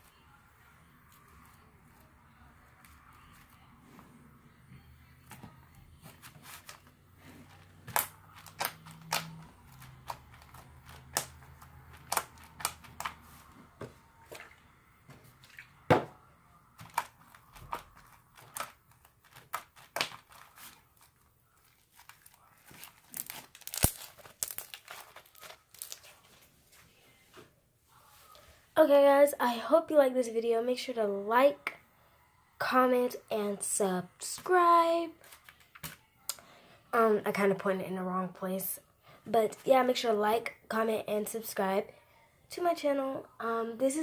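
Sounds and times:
slime popping and crackling: 0:22.1 - 0:26.0.

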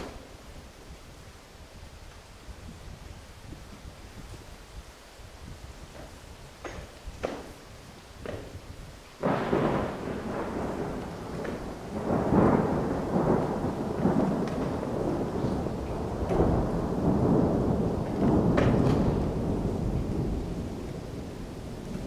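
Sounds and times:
rain: 0:00.0 - 0:22.0
deep rolling rumble: 0:09.2 - 0:22.0.

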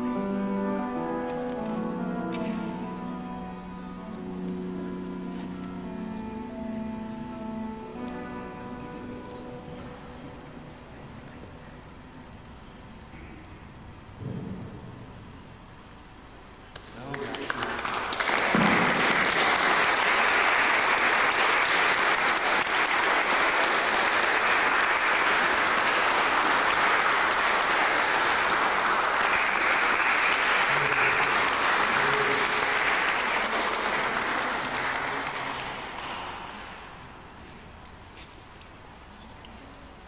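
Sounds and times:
audience applauding: 0:17.0 - 0:37.0.

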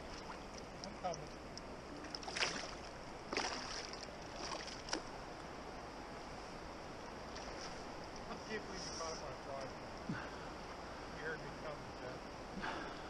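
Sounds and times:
water splashes: 0:00.0 - 0:05.2
flowing river water: 0:00.0 - 0:13.0.

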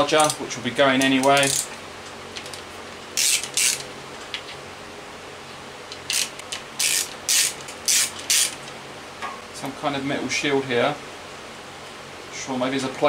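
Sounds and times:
ratchet wrench clicking: 0:01.0 - 0:01.7, 0:03.2 - 0:03.8, 0:06.1 - 0:08.6.

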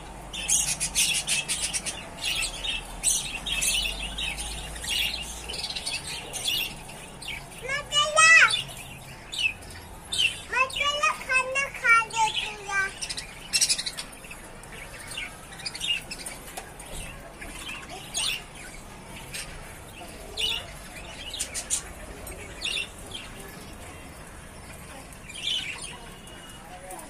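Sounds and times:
budgerigars chirping: 0:00.4 - 0:11.0.

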